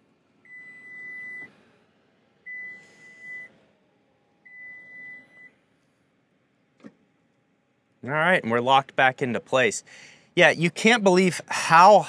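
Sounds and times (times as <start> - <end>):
high warning beeps: 0.5 - 1.5.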